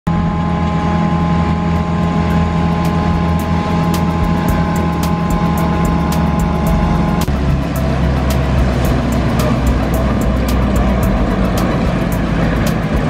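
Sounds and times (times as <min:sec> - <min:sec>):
tractor engine and mower drone: 0:00.0 - 0:13.0
higher humming tones: 0:00.1 - 0:13.0
sharp ticks: 0:02.8 - 0:13.0.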